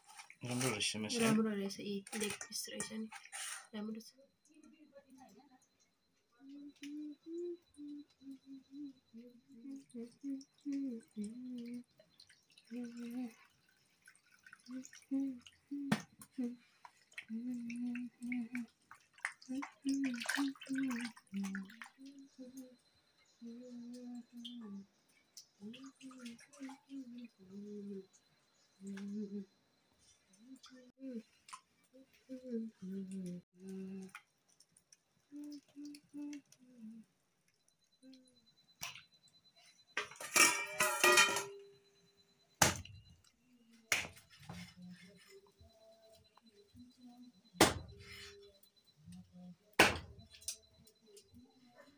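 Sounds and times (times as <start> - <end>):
water sloshing in steel bowl: 0.0 - 3.7, 11.0 - 22.1, 40.0 - 41.6
clatter with ringing tone: 0.4 - 5.9, 37.6 - 42.3
person humming a tune: 6.4 - 11.9, 12.7 - 13.4, 14.7 - 16.6, 17.3 - 18.7, 20.8 - 22.8, 23.4 - 24.9, 25.6 - 28.1, 28.8 - 29.5, 31.9 - 34.1, 35.3 - 37.1, 38.0 - 38.5.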